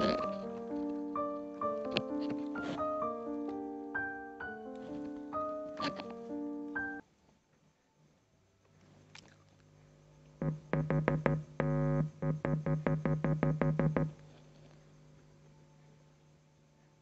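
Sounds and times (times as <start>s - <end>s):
stuttering speaker buzzes: 0.0s - 1.2s, 10.4s - 14.7s
speaker low hum: 10.4s - 14.3s.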